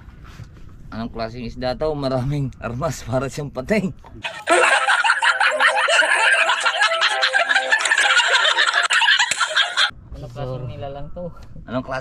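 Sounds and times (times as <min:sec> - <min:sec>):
men laughing hysterically: 0:04.2 - 0:09.9.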